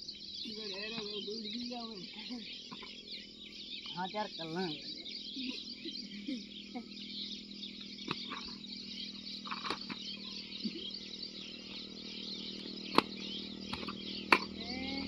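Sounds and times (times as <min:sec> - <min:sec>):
birds chirping: 0:00.0 - 0:15.0
low hum: 0:00.0 - 0:15.0.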